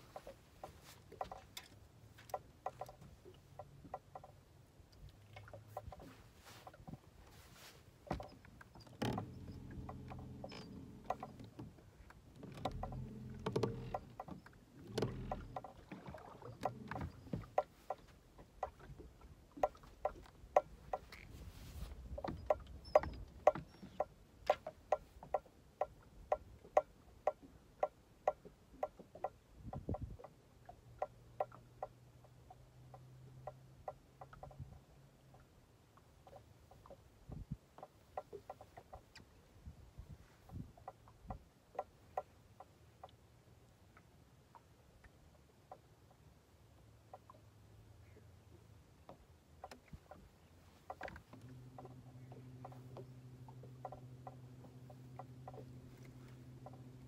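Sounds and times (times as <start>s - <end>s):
light evenly spaced knocks: 0.0s - 43.4s, 44.0s - 57.0s
trolling motor humming: 8.0s - 24.8s, 49.7s - 57.0s.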